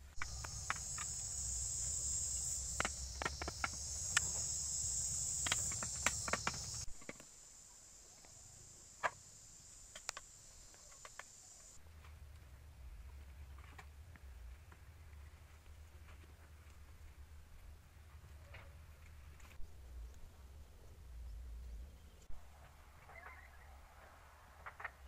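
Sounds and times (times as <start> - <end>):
insects chirring: 0.0 - 11.8
taps on bamboo strips: 0.2 - 7.3.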